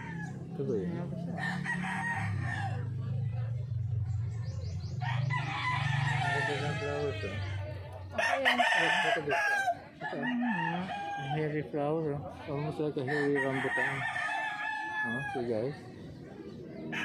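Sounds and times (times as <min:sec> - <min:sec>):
roosters crowing: 0:00.0 - 0:00.6, 0:01.4 - 0:03.2, 0:04.9 - 0:11.7, 0:13.0 - 0:15.8, 0:16.7 - 0:17.0.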